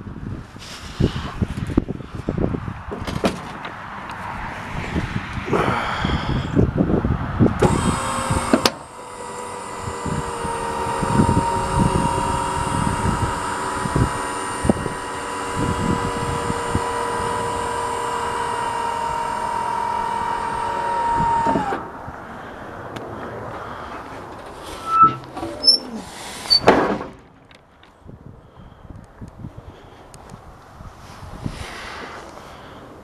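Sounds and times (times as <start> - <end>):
hydraulic pump motor whining: 7.5 - 21.9, 24.7 - 26.7.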